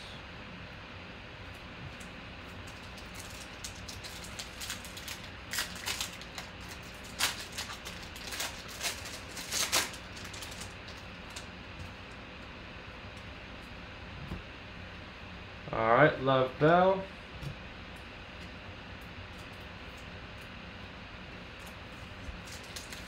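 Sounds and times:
foil wrapper crackling and tearing: 2.6s - 11.5s, 21.6s - 23.0s.

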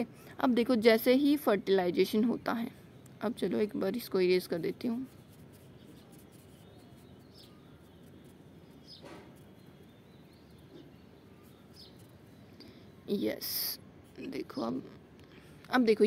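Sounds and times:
short bird chirps: 5.7s - 13.1s.

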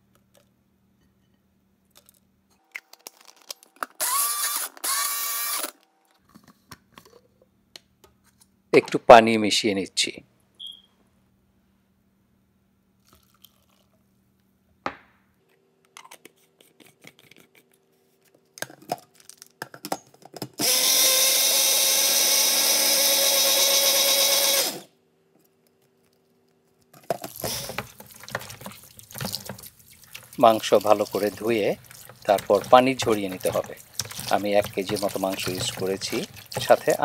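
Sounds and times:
blender running: 4.0s - 5.7s, 20.6s - 24.9s, 27.4s - 28.5s, 32.3s - 37.0s
water splashing in a bowl: 27.3s - 37.0s.

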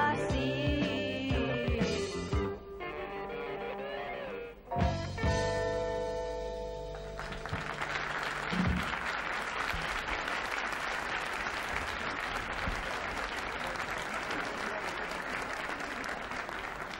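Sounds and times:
audience applauding: 7.0s - 16.9s.

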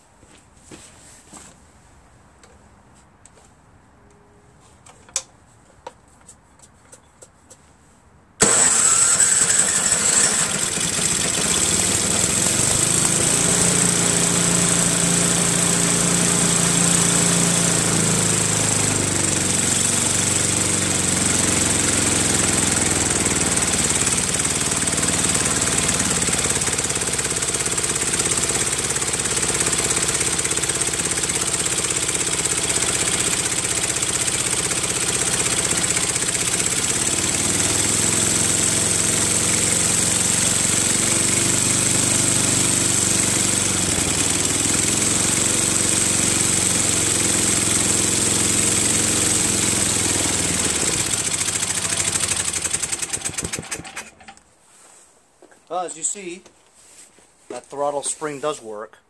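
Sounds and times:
snowblower engine starting and running: 8.4s - 54.4s.

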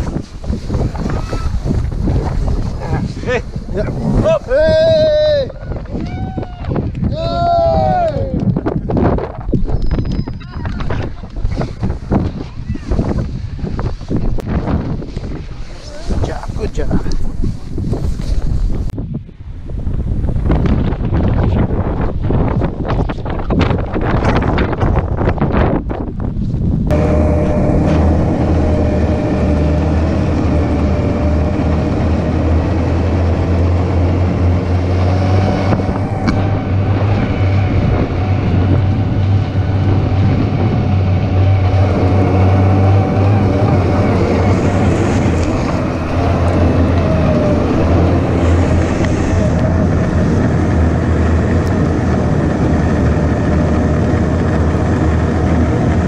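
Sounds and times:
snowmobile engine running: 0.0s - 6.0s, 26.9s - 56.0s.

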